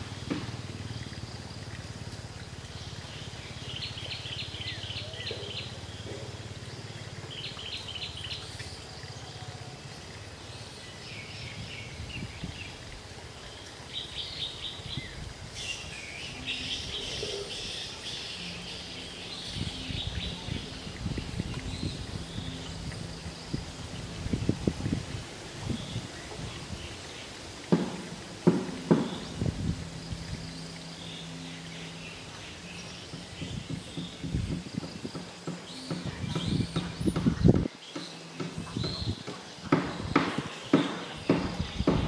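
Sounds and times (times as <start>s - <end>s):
low thumps: 27.7s - 30.5s, 32.8s - 37.7s, 38.4s - 42.0s.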